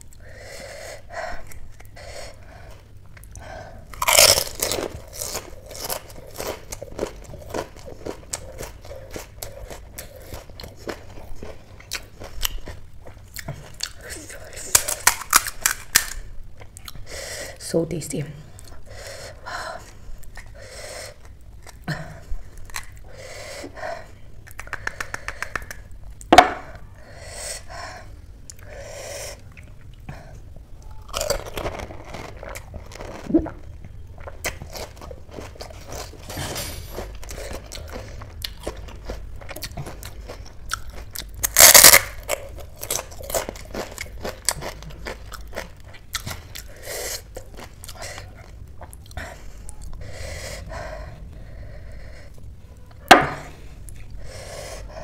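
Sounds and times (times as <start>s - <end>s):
crisp shells cracking and crunching: 4.0s - 11.2s, 13.8s - 16.3s, 31.0s - 33.3s, 36.9s - 46.6s.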